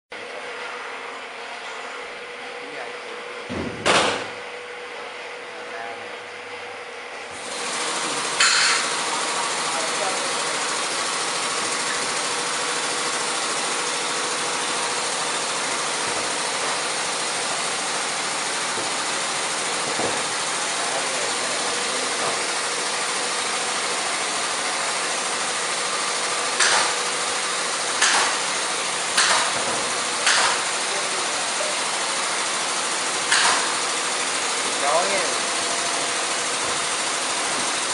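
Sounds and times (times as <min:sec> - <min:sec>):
sharp knocks of panels: 0:03.5 - 0:04.4, 0:26.6 - 0:27.0, 0:28.0 - 0:28.5, 0:29.2 - 0:30.6.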